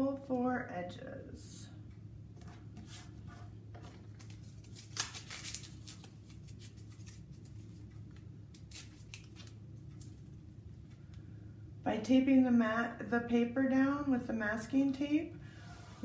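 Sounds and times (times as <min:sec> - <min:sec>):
faint low hum: 0:00.0 - 0:16.0
masking tape ripping: 0:04.6 - 0:06.4.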